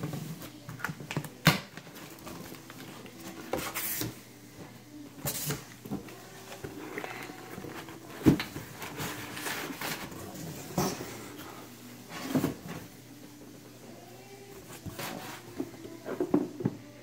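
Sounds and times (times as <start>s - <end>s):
packing paper rustling: 6.1s - 10.6s.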